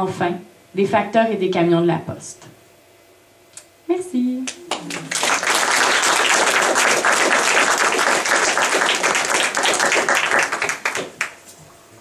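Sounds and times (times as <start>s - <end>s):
audience applauding: 4.7s - 11.4s.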